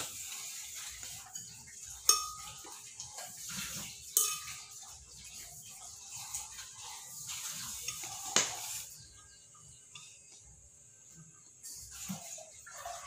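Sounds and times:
kitchenware clinking: 0.0 - 8.9.

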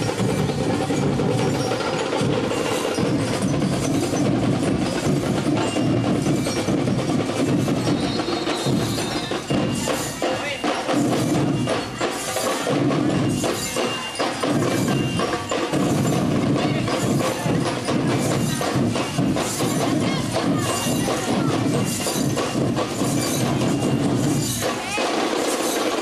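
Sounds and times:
bell-lyre tones: 0.0 - 25.1
marching drum beat: 0.0 - 26.0.

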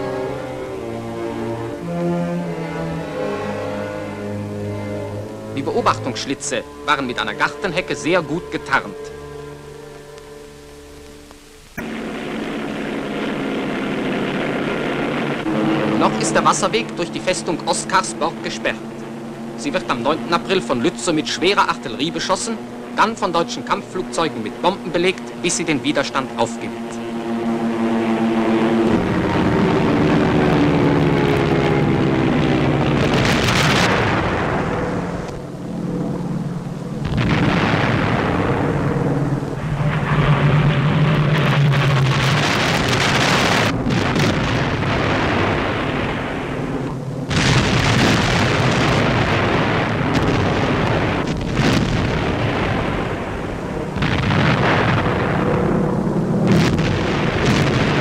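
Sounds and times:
low steady drone: 0.0 - 58.0
sharp crack: 4.6 - 27.2, 32.8 - 35.7, 36.5 - 58.0
artillery fire and explosions: 11.8 - 18.1, 32.3 - 35.3, 37.0 - 58.0.

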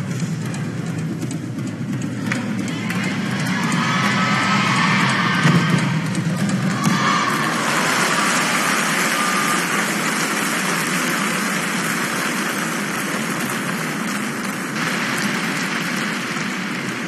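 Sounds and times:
crowd applauding and cheering: 0.0 - 17.0.

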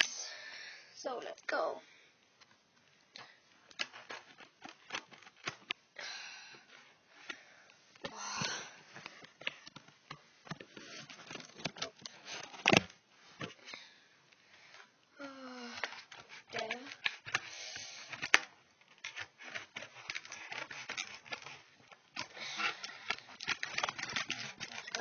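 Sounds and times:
cardboard tearing rustles: 18.0 - 25.0.

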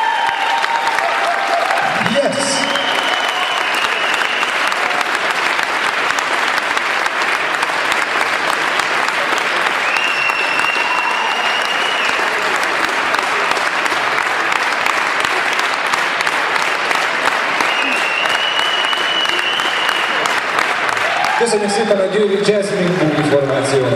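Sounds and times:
audience applauding: 0.0 - 23.9
high whistle from crowd: 2.3 - 4.8, 9.8 - 12.4, 17.6 - 20.3.

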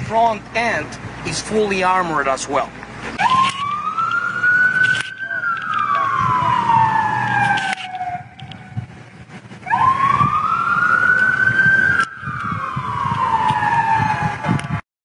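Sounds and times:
emergency siren wailing: 3.2 - 14.8.

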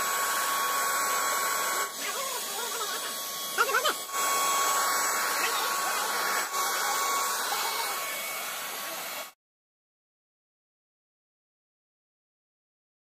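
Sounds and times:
paint spray gun whining and hissing: 0.0 - 9.4.

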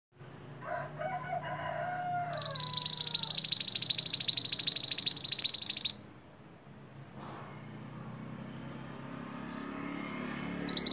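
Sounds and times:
rooster crowing: 0.6 - 3.8
bird singing rapid high trill: 2.2 - 6.1, 8.6 - 10.9.

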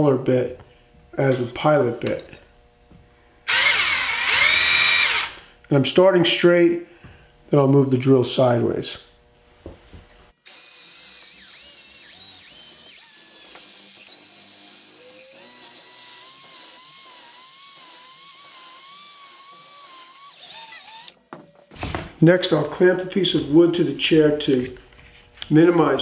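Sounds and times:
cordless drill whining: 3.5 - 5.4, 10.5 - 21.2.

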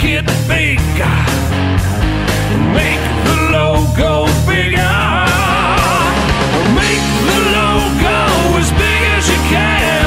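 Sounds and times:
rock music with guitar: 0.0 - 10.0.

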